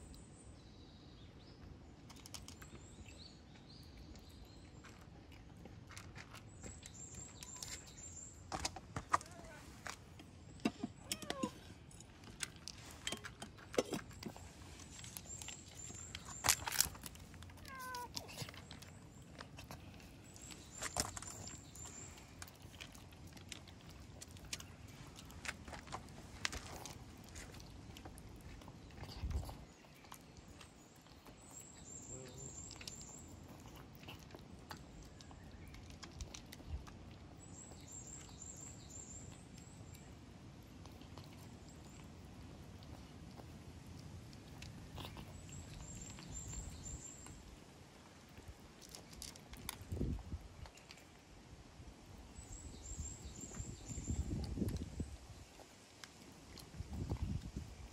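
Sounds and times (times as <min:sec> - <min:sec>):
cat crunching dry food: 0:02.0 - 0:08.0, 0:10.9 - 0:51.4
small clicks and rustles: 0:02.0 - 0:51.3
cat meowing: 0:11.0 - 0:11.6, 0:17.6 - 0:18.3.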